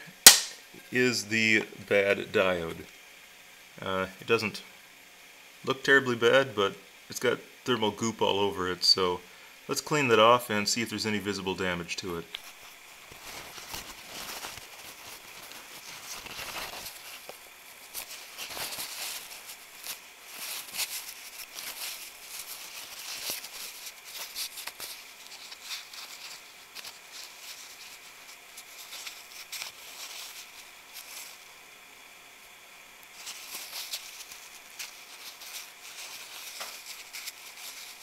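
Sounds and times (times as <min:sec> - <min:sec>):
paper towel rubbing and crinkling: 0:12.0 - 0:31.6, 0:33.0 - 0:38.0.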